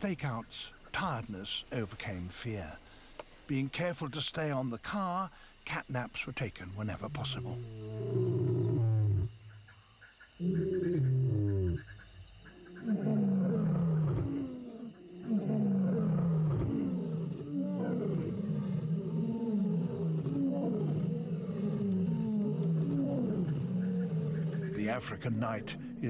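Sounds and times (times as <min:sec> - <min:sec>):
high insect trill: 0:00.0 - 0:26.0
low grunting calls: 0:06.7 - 0:09.6, 0:10.4 - 0:26.0
lion roaring: 0:07.2 - 0:09.3, 0:10.4 - 0:11.8, 0:12.5 - 0:26.0.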